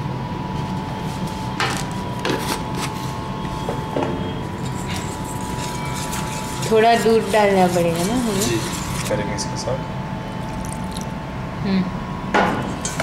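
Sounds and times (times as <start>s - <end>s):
steady hum: 0.0s - 13.0s
whisk scraping metal bowl: 4.5s - 9.2s.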